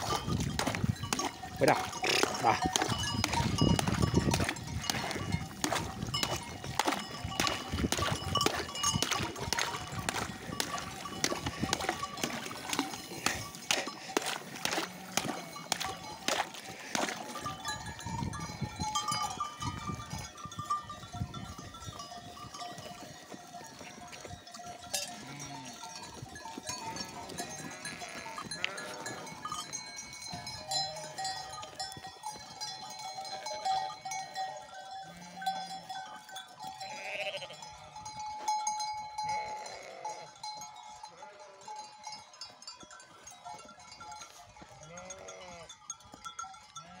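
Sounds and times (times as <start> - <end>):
sheep bells clinking: 0.0 - 47.0
stick knocking and splashing in water: 2.7 - 17.3
sheep bleating: 14.8 - 15.8, 27.5 - 29.4, 36.9 - 37.6, 39.4 - 40.3, 44.8 - 45.7, 46.8 - 47.0.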